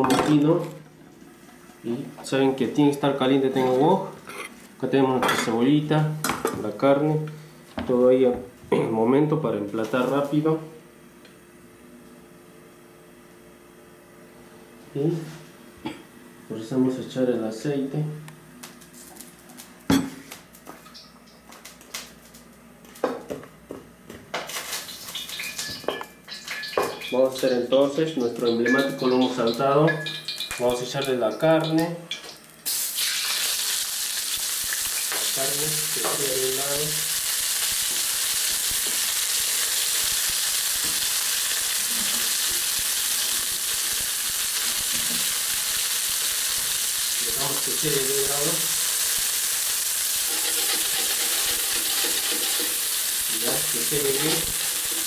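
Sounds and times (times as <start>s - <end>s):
cookware and utensils clattering: 24.4s - 27.6s, 28.2s - 32.4s, 50.3s - 55.0s
meat sizzling in hot oil: 32.4s - 55.0s.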